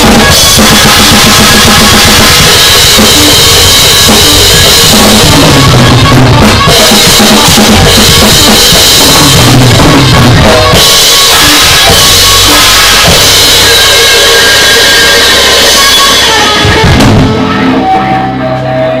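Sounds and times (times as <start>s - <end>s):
drum kit played hard: 0.0s - 18.6s
sustained instrument notes: 0.0s - 19.0s.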